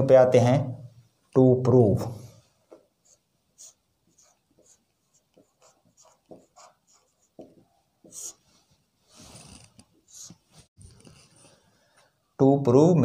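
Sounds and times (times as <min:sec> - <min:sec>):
marker pen writing on whiteboard: 0:02.7 - 0:08.5, 0:09.4 - 0:11.7.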